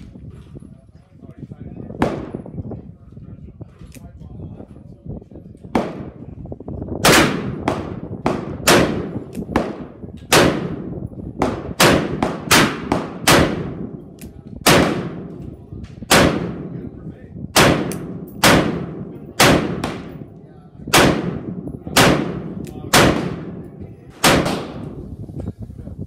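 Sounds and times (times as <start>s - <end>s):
echoing gunshots: 2.0s - 2.4s, 5.7s - 6.2s, 7.0s - 15.4s, 16.0s - 25.0s.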